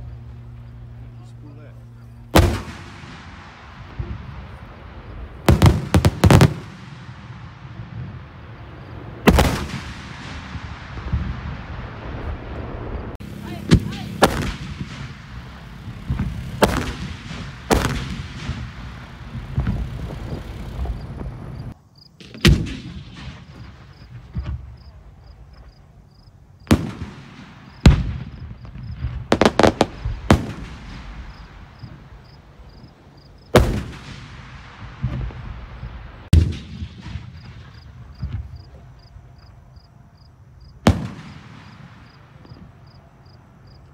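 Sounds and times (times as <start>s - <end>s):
fireworks shells bursting: 13.2s - 25.8s.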